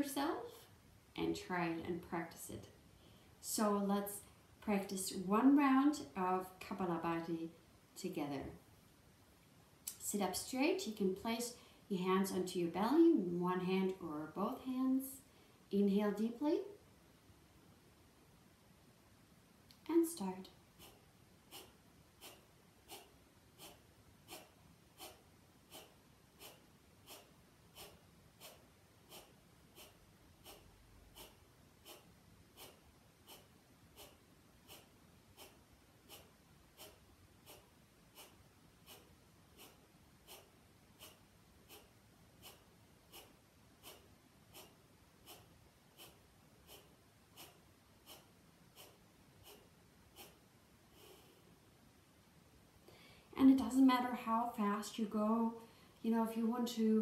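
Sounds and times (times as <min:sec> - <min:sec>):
forceful nasal exhalations: 0:20.7 - 0:51.5.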